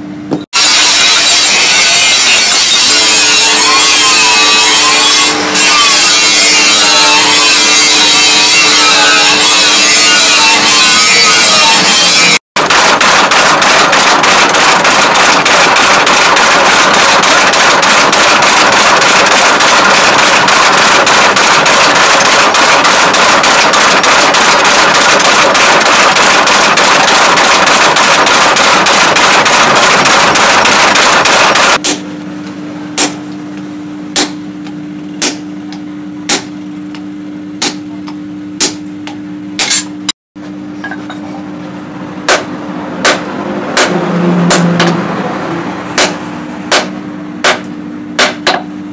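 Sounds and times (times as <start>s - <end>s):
power hammer pounding: 0.6s - 32.0s, 42.2s - 45.1s, 45.9s - 48.7s.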